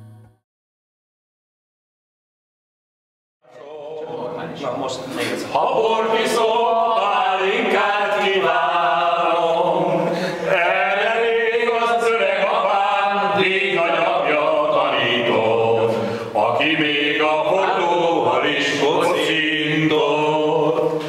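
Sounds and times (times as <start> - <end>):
men singing unaccompanied: 5.5 - 21.0.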